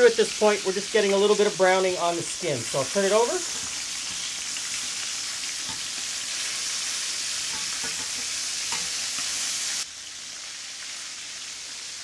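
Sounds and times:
chicken sizzling in oil: 0.0s - 12.0s
tongs clicking against pan: 5.6s - 6.1s, 7.5s - 9.3s.

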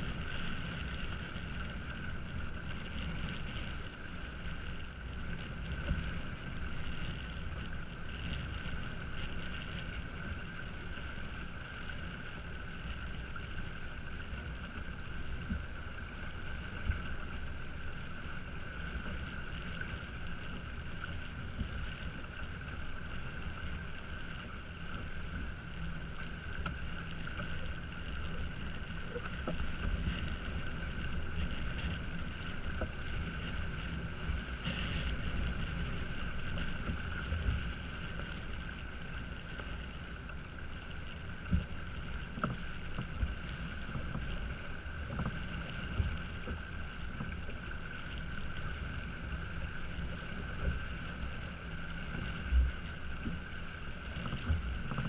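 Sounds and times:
water rushing past hull: 0.0s - 55.0s.

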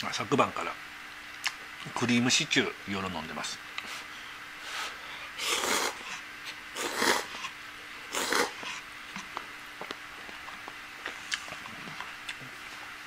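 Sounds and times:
person slurping noodles: 5.4s - 6.0s, 6.7s - 7.4s, 8.1s - 8.6s.

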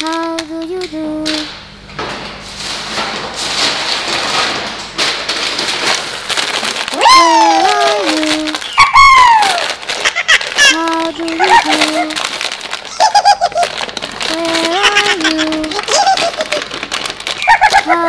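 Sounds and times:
candies clattering into glass bowl: 5.0s - 18.0s.

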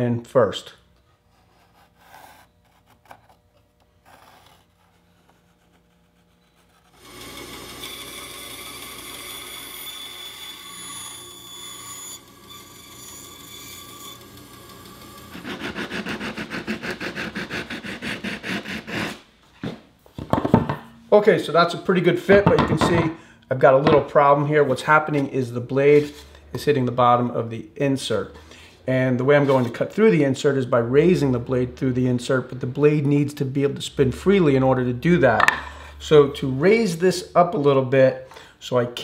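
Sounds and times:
pencil scratching on wood: 1.3s - 3.4s, 4.0s - 7.0s, 15.4s - 19.2s
band saw cutting wood: 6.6s - 19.2s
hand sanding wood: 15.4s - 19.2s.

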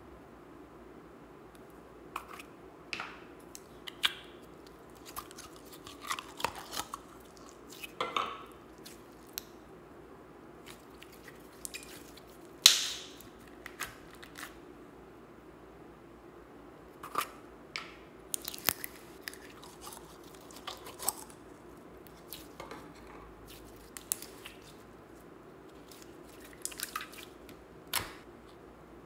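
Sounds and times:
slime squelching: 3.4s - 9.6s, 10.6s - 14.6s, 18.3s - 22.6s, 23.4s - 28.2s.

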